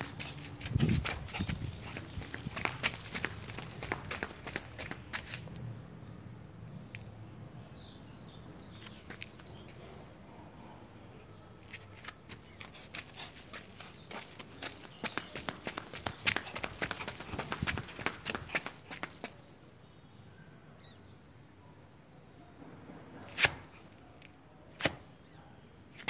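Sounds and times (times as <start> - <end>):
dog claws clicking on concrete: 0.0 - 5.6, 11.6 - 19.4.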